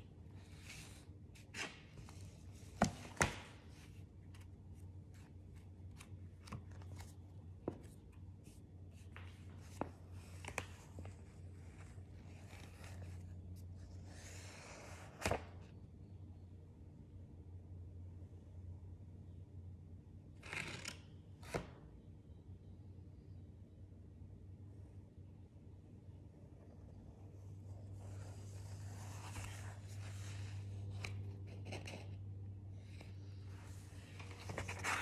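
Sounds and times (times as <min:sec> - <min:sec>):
low steady hum: 0:00.0 - 0:35.0
magazine pages rustling: 0:00.3 - 0:15.6, 0:27.7 - 0:35.0.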